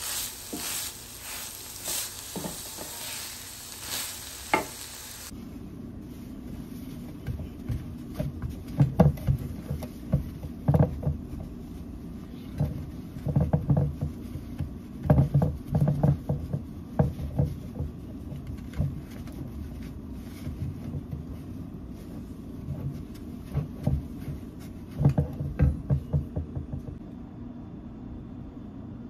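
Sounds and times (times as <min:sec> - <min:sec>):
paper towel swishing in ceramic dish: 0:16.6 - 0:25.1.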